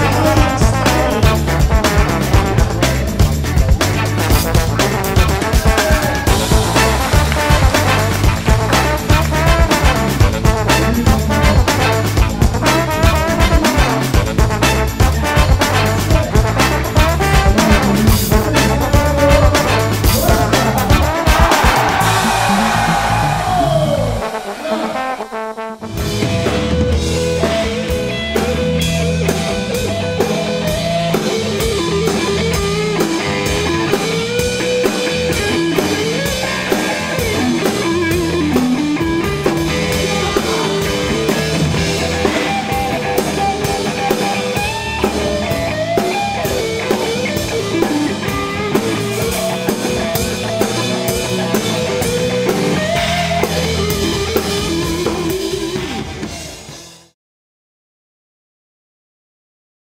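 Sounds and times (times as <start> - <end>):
electric guitar: 0.0 - 24.3, 25.9 - 57.1
drum beat: 0.2 - 23.6.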